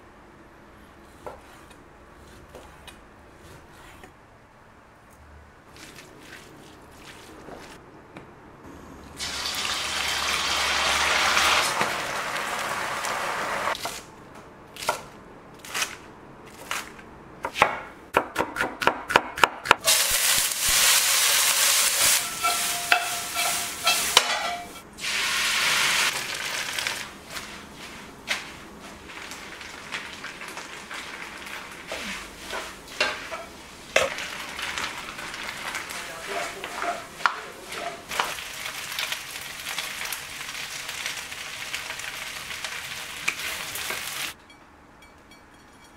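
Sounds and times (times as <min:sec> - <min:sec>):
food sizzling in a wok: 0:09.2 - 0:13.8, 0:19.8 - 0:44.4
spatula scraping a pan: 0:21.3 - 0:24.8, 0:26.7 - 0:29.1, 0:35.7 - 0:38.4.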